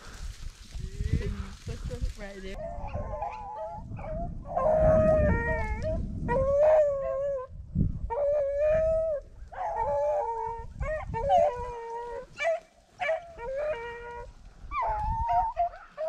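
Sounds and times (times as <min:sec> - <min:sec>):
hunting dogs baying: 0:02.6 - 0:07.5, 0:08.1 - 0:16.0.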